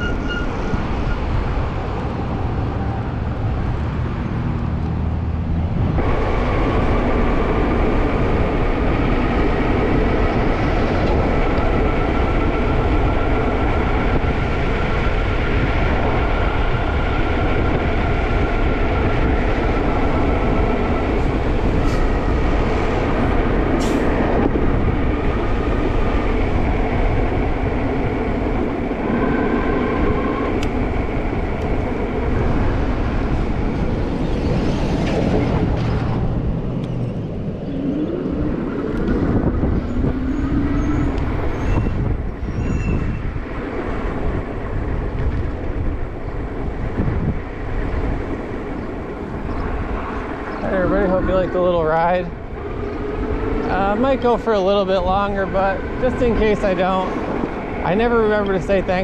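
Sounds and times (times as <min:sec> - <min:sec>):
bike brakes squealing: 0:00.0 - 0:01.2, 0:40.3 - 0:43.2
wind and road noise: 0:00.0 - 0:59.0.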